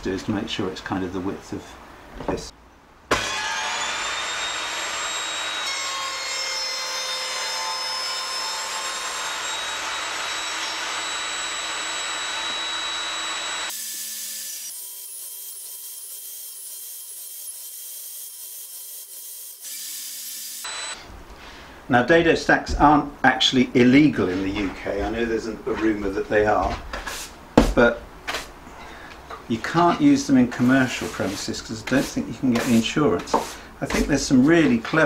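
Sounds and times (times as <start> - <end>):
table saw cutting plywood: 3.1 - 21.0.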